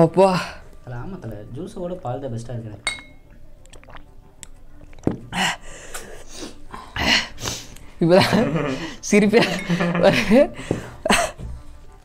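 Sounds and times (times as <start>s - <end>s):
glass clinking: 2.8s - 3.4s, 9.4s - 10.0s
person gasping: 10.6s - 11.0s.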